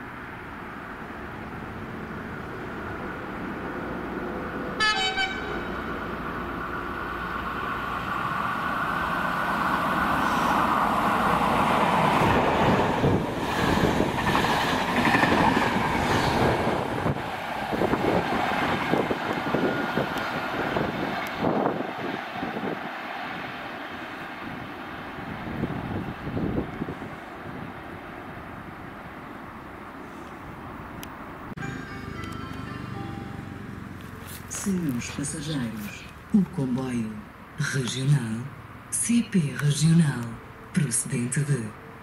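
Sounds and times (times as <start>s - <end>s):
train passing rumble: 0.0s - 42.0s
train horn toot: 4.8s - 5.8s.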